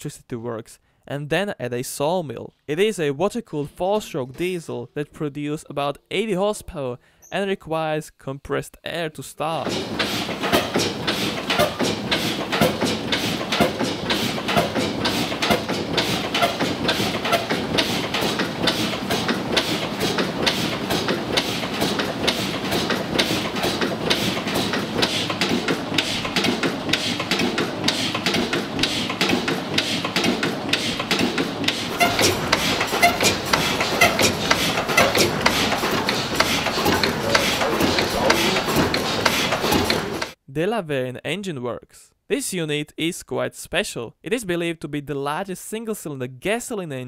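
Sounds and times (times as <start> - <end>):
diesel engine clattering: 9.6 - 40.4.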